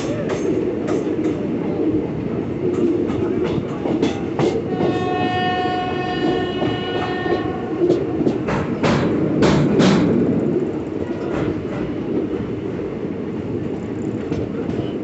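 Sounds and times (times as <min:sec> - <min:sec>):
train rumbling with wheel clicks: 0:00.0 - 0:15.0
train horn: 0:04.5 - 0:07.9.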